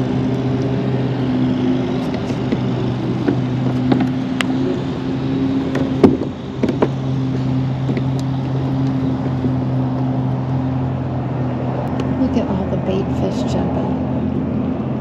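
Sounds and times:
low motor hum: 0:00.0 - 0:15.0
sharp clicks and knocks: 0:05.6 - 0:10.1.

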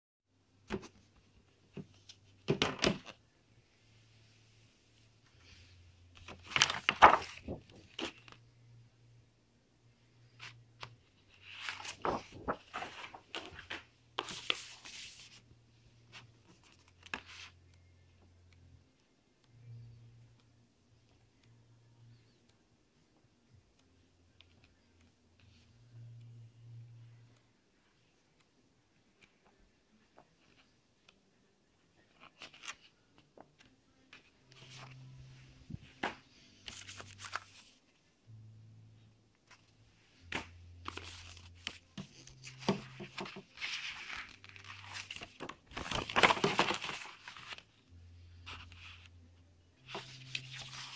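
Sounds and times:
low steady hum: 0:03.2 - 0:14.8, 0:15.4 - 0:28.9, 0:33.4 - 0:50.9
paper rustling and sliding: 0:05.4 - 0:08.4, 0:10.4 - 0:15.5, 0:34.5 - 0:37.8, 0:40.3 - 0:47.6, 0:49.9 - 0:50.9.

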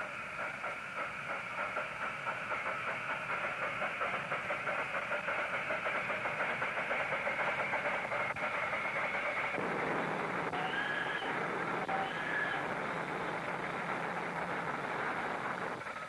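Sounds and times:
miniature steam train chuffing: 0:00.0 - 0:16.0
steam hiss: 0:00.0 - 0:16.0.

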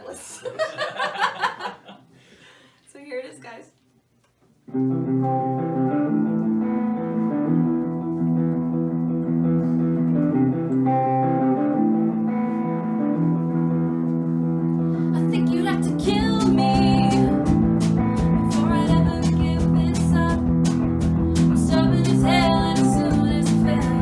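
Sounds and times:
electric guitar chords: 0:04.7 - 0:24.0
woman singing: 0:15.1 - 0:17.5, 0:18.4 - 0:20.6, 0:21.4 - 0:24.0
drums and cymbals: 0:17.0 - 0:23.7.

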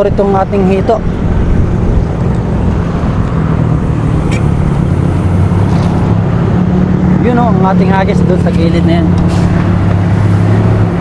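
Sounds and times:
vehicle engines rumbling: 0:00.0 - 0:11.0.

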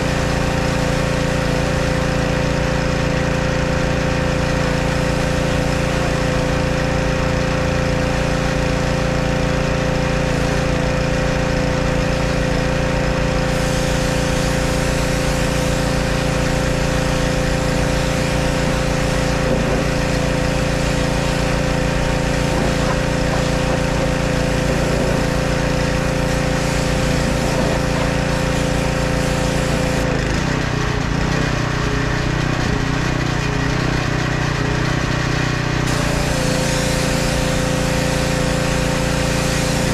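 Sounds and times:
pressure washer engine running: 0:00.0 - 0:39.9
water jet hissing: 0:13.3 - 0:30.1, 0:35.9 - 0:39.9.

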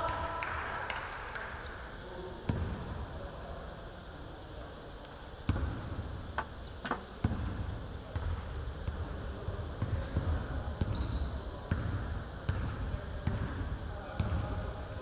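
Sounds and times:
sneakers squeaking on court: 0:08.2 - 0:11.9.

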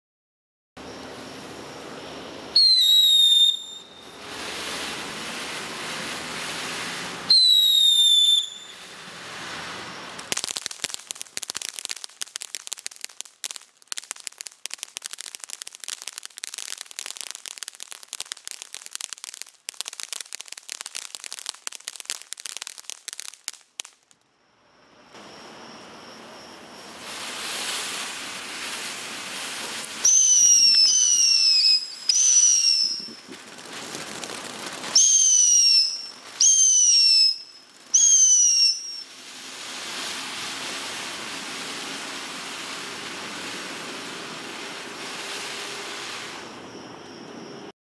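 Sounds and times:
firework hiss: 0:00.8 - 0:24.2, 0:25.0 - 0:47.7
firework whistles: 0:00.8 - 0:47.8
rapid firework crackling: 0:02.6 - 0:24.2, 0:26.8 - 0:47.2.

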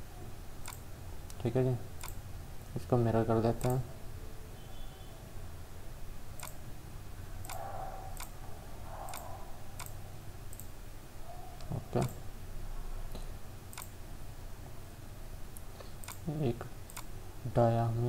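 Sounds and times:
faint low hum: 0:00.0 - 0:18.0
computer mouse clicking: 0:00.6 - 0:01.4, 0:02.0 - 0:02.2, 0:03.6 - 0:03.8, 0:06.4 - 0:06.6, 0:07.4 - 0:08.4, 0:09.0 - 0:10.8, 0:13.7 - 0:13.9, 0:15.6 - 0:16.3, 0:16.9 - 0:17.1.

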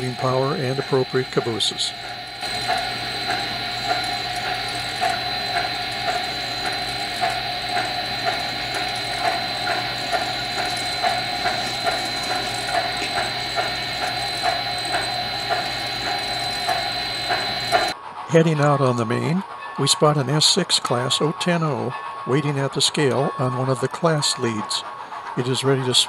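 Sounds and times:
high whine: 0:00.0 - 0:18.5
model train rattling: 0:00.0 - 0:26.0
rhythmic clicks of train cars: 0:00.0 - 0:26.0.

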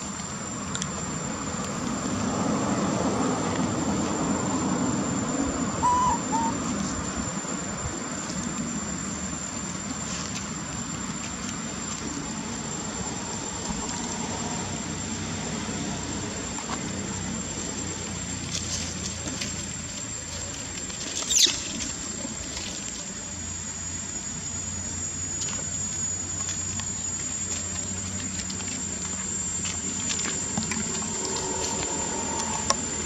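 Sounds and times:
high-pitched insect drone: 0:00.0 - 0:33.0
short calls: 0:05.6 - 0:06.9.

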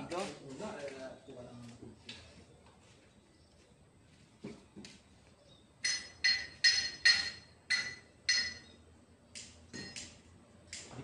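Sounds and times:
sharp taps on metal: 0:05.8 - 0:11.0.

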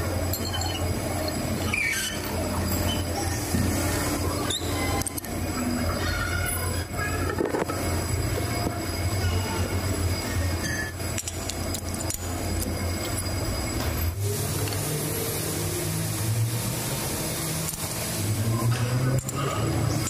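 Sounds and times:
metal lathe humming: 0:00.0 - 0:20.0
scattered clicks: 0:11.1 - 0:13.3, 0:19.1 - 0:19.4.

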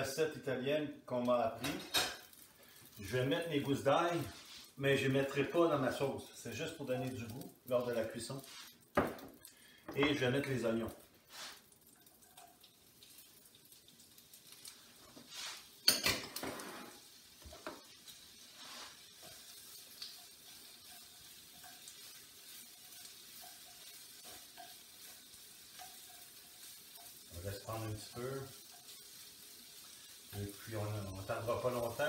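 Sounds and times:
onions sizzling in frying pan: 0:11.2 - 0:32.0
utensil tapping and scraping pan: 0:18.8 - 0:27.2.

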